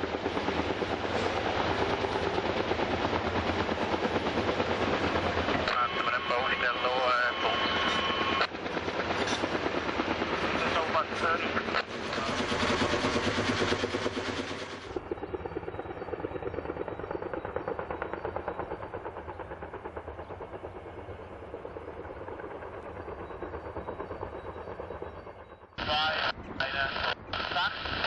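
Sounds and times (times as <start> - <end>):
helicopter rotor blades beating: 0.0 - 28.0.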